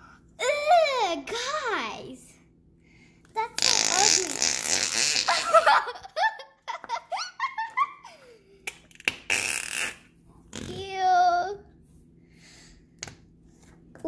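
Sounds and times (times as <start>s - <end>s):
putty squelching fart-like: 3.5s - 5.4s, 8.9s - 10.8s
child giggling: 5.0s - 8.5s.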